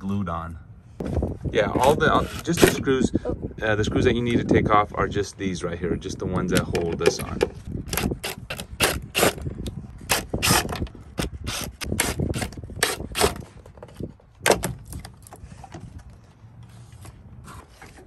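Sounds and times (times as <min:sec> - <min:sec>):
hard plastic clicking and knocking: 0:06.4 - 0:08.1.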